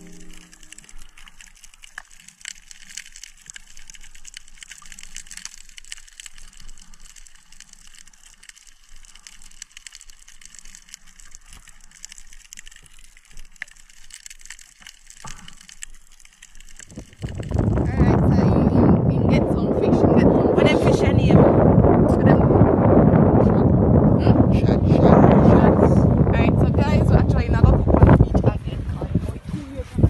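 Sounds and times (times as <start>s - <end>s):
underwater crackling clicks: 0.0s - 18.5s.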